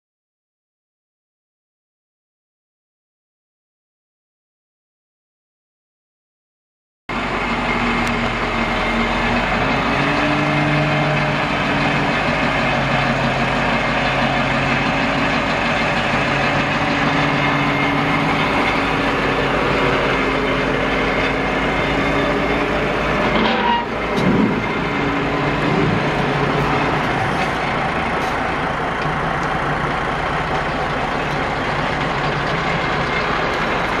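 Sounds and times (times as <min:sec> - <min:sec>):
diesel truck engine running: 0:07.1 - 0:34.0.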